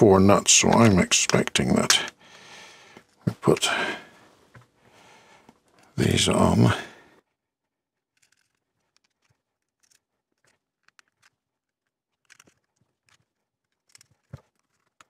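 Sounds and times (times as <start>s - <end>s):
small screws and nuts clicking: 8.0s - 15.0s.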